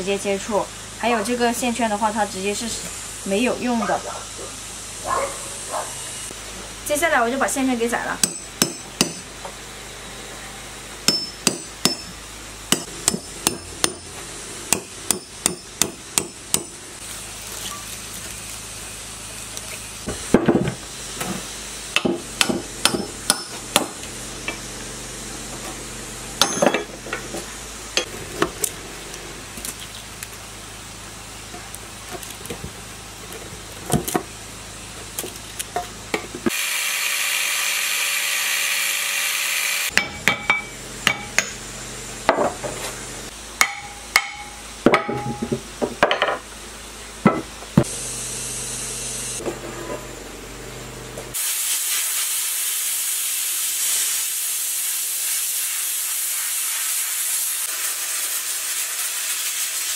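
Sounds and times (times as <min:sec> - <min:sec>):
hammer striking chisel on metal: 0:08.2 - 0:09.3, 0:11.1 - 0:14.1, 0:14.7 - 0:16.8, 0:22.0 - 0:24.0, 0:26.4 - 0:26.9, 0:39.9 - 0:41.6, 0:43.6 - 0:46.4
angle grinder cutting metal: 0:36.5 - 0:41.6.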